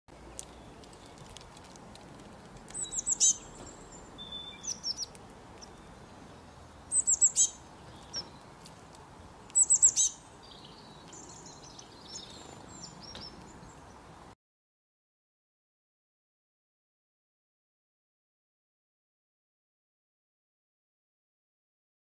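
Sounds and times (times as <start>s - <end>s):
songbird chirping: 0.1s - 14.4s
soft bird twittering: 2.7s - 8.6s, 9.2s - 14.0s.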